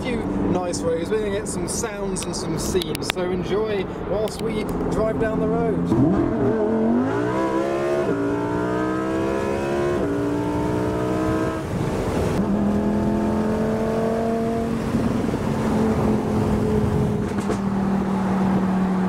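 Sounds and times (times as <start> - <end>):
car engine accelerating through gears: 5.8 - 19.0.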